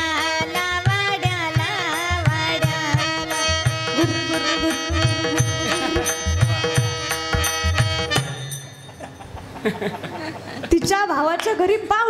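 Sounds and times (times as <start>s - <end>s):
harmonium chords: 0.0s - 9.9s
drum beat: 3.7s - 8.6s.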